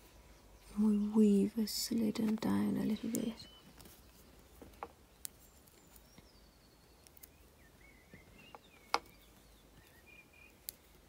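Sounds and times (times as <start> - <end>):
faint high chirps: 5.4 - 10.9
copper wire clicking in fingers: 7.0 - 7.4.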